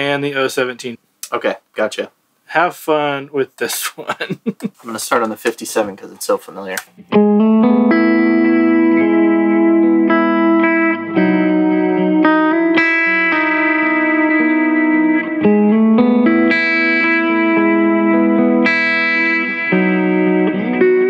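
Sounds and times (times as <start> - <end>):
clean electric guitar: 6.8 - 21.0.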